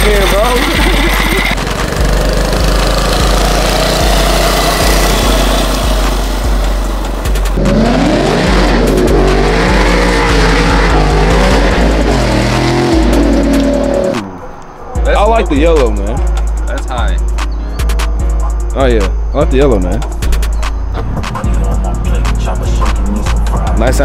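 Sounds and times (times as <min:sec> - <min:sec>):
vehicle engine revving: 0:00.0 - 0:14.4.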